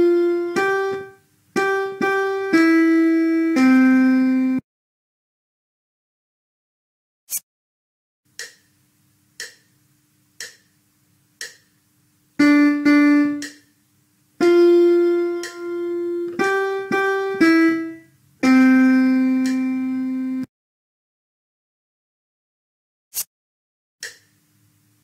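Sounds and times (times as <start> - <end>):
piano melody: 0.0 - 4.6, 12.4 - 13.6, 14.4 - 20.5
count-in ticks: 8.3 - 8.7, 9.4 - 9.8, 10.4 - 10.8, 11.4 - 11.7, 13.3 - 13.7, 15.4 - 15.6.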